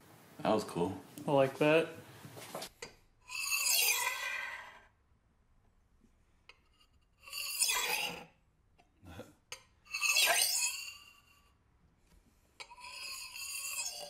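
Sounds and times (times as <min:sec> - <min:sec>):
knife scraping countertop: 0:07.2 - 0:08.3, 0:09.9 - 0:11.4, 0:12.6 - 0:14.0.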